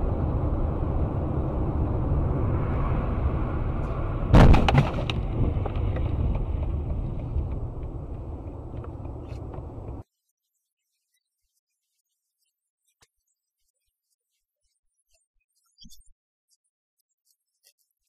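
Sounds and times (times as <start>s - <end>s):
car engine and road rumble: 0.0s - 10.0s
vehicle crash impact: 3.7s - 10.0s.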